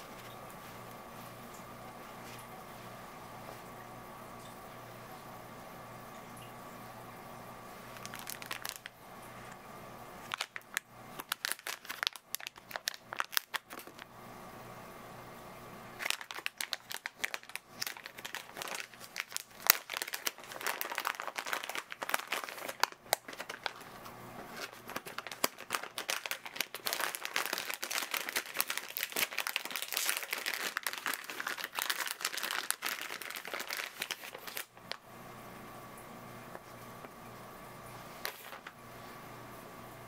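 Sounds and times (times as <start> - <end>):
plastic pouch crinkling and tearing: 7.9 - 9.0, 10.2 - 14.1, 16.0 - 35.0.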